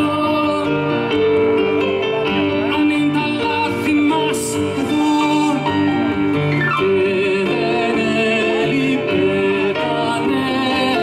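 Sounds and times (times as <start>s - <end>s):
acoustic guitar: 0.0s - 11.0s
keyboard: 0.0s - 11.0s
woman singing: 2.6s - 5.8s, 6.8s - 11.0s.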